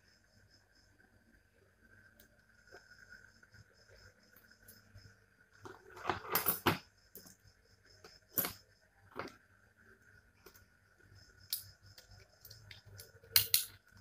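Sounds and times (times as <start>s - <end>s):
plastic parts clicking and clattering: 5.6s - 7.3s.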